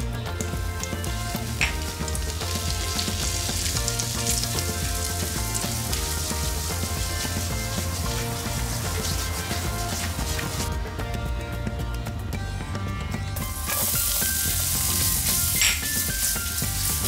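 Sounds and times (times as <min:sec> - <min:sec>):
butter and flour sizzling in a pan: 0:00.0 - 0:10.8, 0:13.4 - 0:17.0
background music: 0:00.0 - 0:17.0
spatula stirring in a pan: 0:01.1 - 0:10.7.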